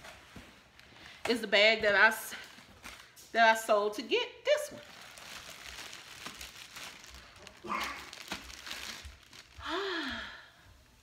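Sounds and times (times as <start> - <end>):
plastic wrapping crinkling: 4.5 - 10.3.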